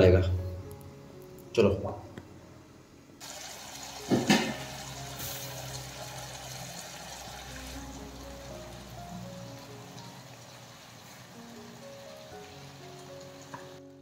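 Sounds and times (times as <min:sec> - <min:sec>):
curry sizzling in a pan: 0:03.2 - 0:13.9.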